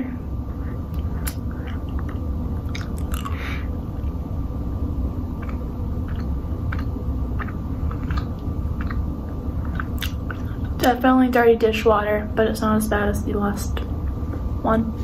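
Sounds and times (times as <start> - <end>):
steady low hum: 0.0 - 15.0
wet mouth clicks chewing: 0.9 - 3.4, 5.4 - 10.8.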